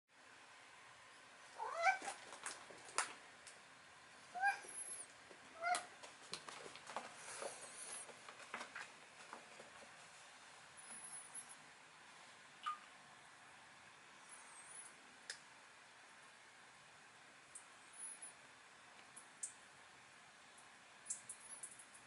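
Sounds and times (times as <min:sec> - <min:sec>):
cat meowing: 0:01.6 - 0:02.2, 0:04.4 - 0:05.0, 0:05.6 - 0:05.9
paws clicking on plastic seat: 0:05.7 - 0:09.9.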